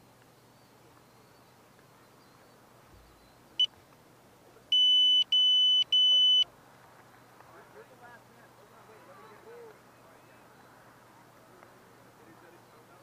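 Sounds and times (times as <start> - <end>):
electronic beeper beeps: 4.8 - 6.4.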